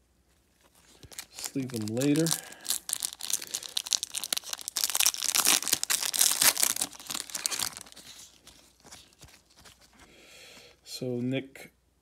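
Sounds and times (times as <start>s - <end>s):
foil wrapper tearing and crinkling: 0.6s - 10.1s.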